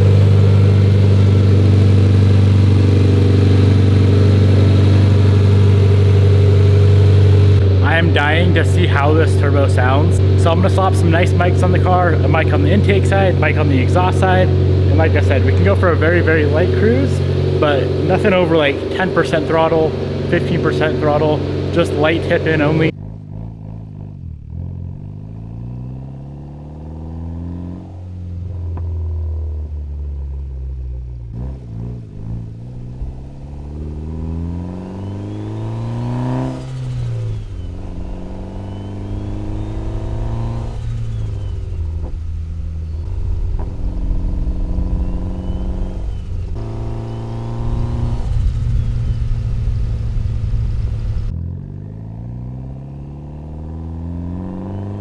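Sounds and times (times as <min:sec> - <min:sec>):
car engine accelerating: 0:00.0 - 0:55.0
turbo spool whistle: 0:37.4 - 0:39.9, 0:44.8 - 0:47.3.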